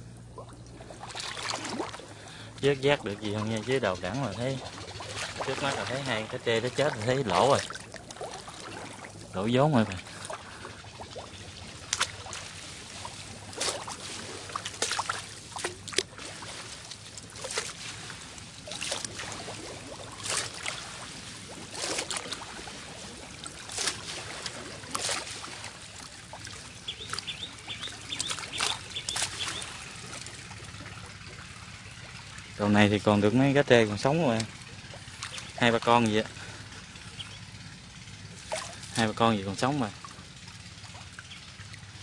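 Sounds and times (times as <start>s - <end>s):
water splashing and sloshing: 0.0s - 42.0s.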